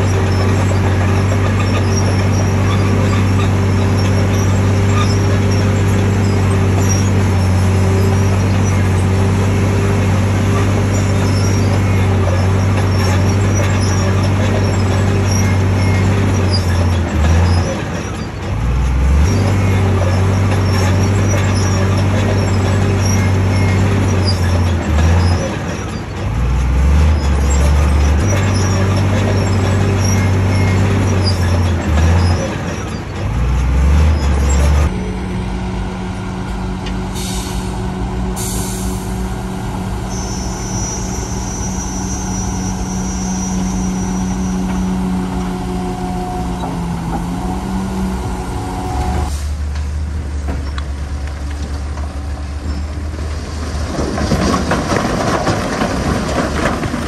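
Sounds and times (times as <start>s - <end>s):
heavy diesel engine running: 0.0s - 57.0s
thin high squeal: 40.0s - 46.9s.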